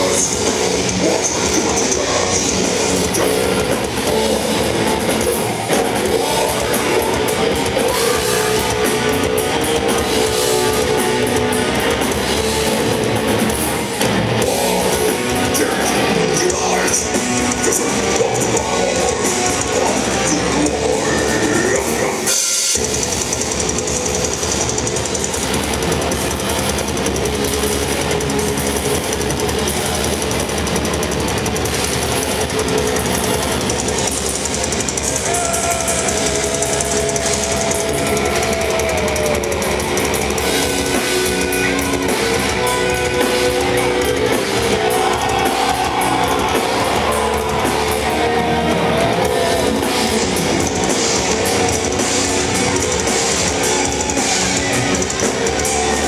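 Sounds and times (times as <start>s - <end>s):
distorted electric guitars: 0.0s - 56.0s
drum kit: 0.0s - 56.0s
held melody line: 0.0s - 56.0s.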